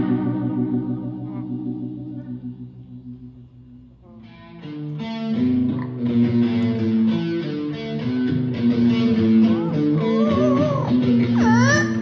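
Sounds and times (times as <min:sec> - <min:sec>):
electric guitar riff: 0:00.0 - 0:12.0
parrot calling: 0:09.4 - 0:12.0.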